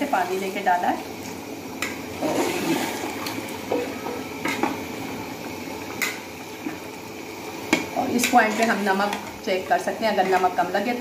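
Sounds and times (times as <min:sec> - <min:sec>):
water sloshing and bubbling: 0:02.1 - 0:04.3.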